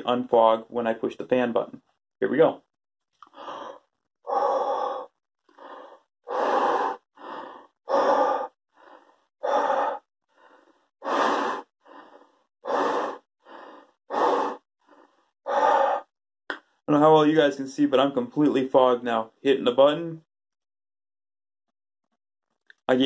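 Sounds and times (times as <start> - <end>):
quiet breaths in: 3.2 - 16.1
man breathing out hard: 3.3 - 16.1.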